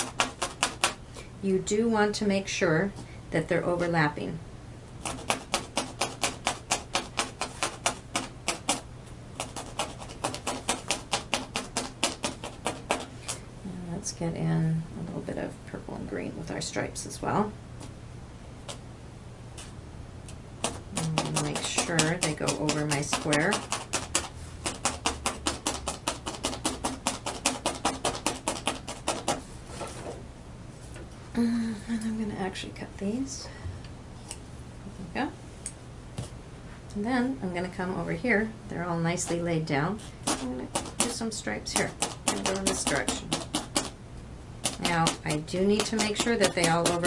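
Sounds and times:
rapid even tapping: 0.0 - 1.0, 5.0 - 13.4, 20.6 - 29.4, 40.2 - 44.0, 44.6 - 47.0
rapid sharp clicking: 9.4 - 13.4, 20.6 - 29.4, 40.2 - 44.0, 44.6 - 47.0.

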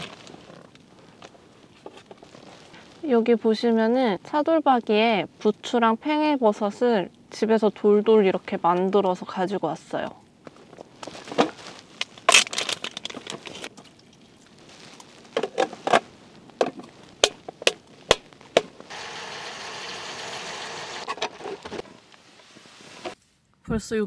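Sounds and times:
plastic packaging crinkling: 0.0 - 3.0, 10.5 - 18.9
steady hiss: 21.7 - 23.4.

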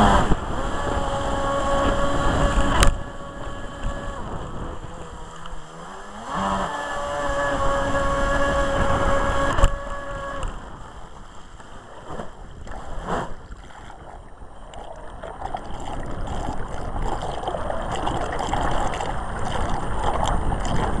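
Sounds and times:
electric motor whine: 0.0 - 10.6
water splashing around hull: 0.0 - 21.0.

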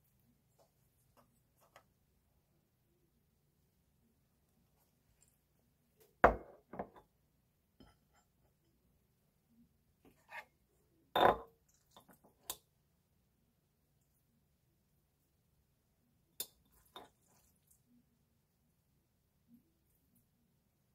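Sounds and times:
glass and ceramic clinking: 11.2 - 11.5.

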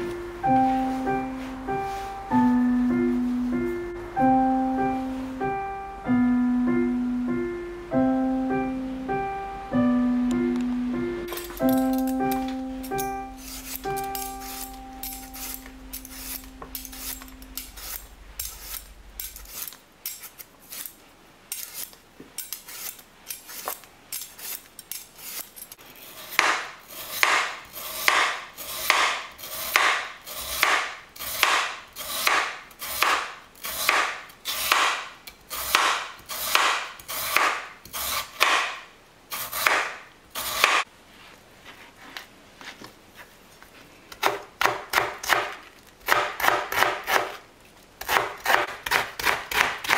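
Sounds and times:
kitchen utensil rasping strokes: 12.9 - 34.8, 35.5 - 38.4.

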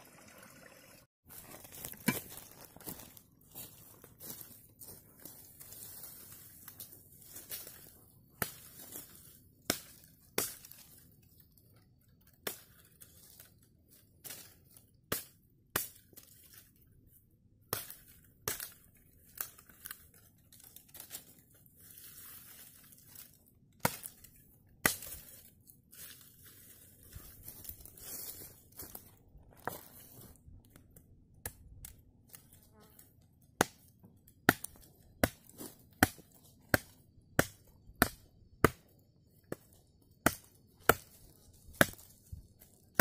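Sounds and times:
dry branches rustling and snapping: 6.6 - 16.8, 17.8 - 32.6, 39.5 - 43.0
machete chopping stems: 33.6 - 38.9, 39.5 - 42.2.

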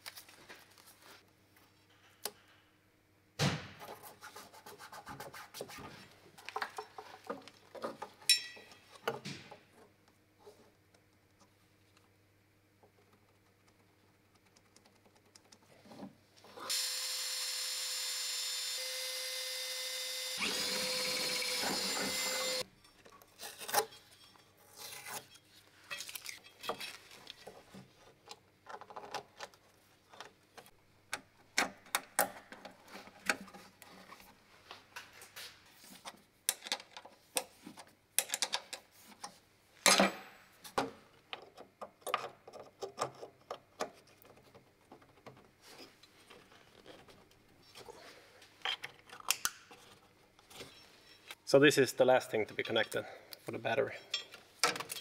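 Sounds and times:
handheld power tool running: 16.7 - 22.6
clicks and knocks of parts handled: 36.0 - 45.5, 48.6 - 51.4.

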